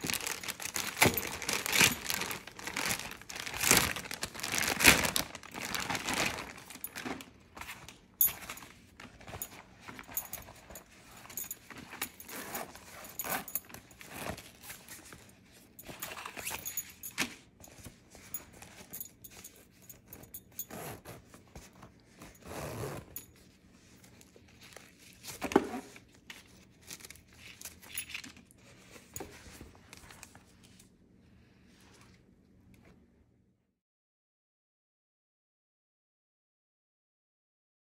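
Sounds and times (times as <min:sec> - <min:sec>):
plastic bag rustling and crinkling: 0:00.0 - 0:17.1
metal zipper clinks: 0:00.1 - 0:23.5.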